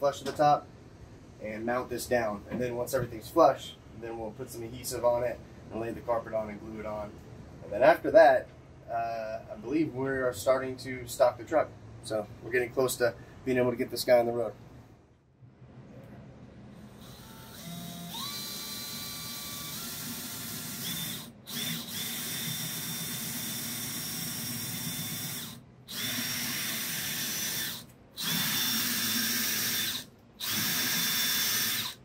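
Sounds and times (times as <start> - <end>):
power drill boring into plywood: 16.9 - 32.0.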